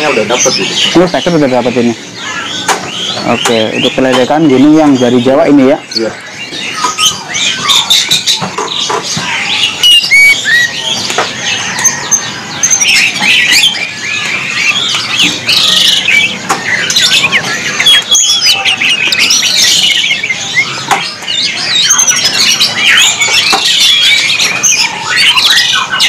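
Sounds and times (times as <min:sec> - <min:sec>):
bird singing high warbled phrases: 0:00.0 - 0:26.0.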